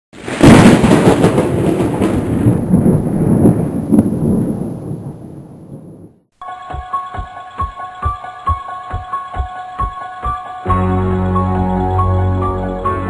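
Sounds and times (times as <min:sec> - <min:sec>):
explosion boom rumbling: 0:00.2 - 0:06.2.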